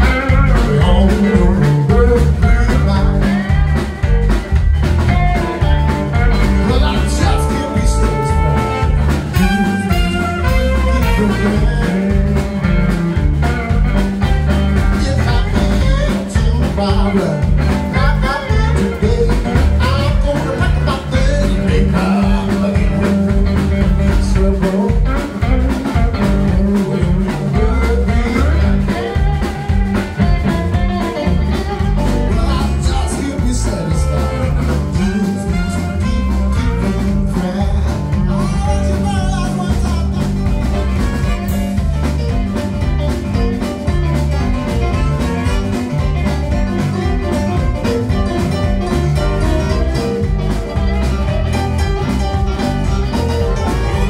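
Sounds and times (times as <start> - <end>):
live band playing: 0.0 - 54.0
steady drum beat: 0.0 - 54.0.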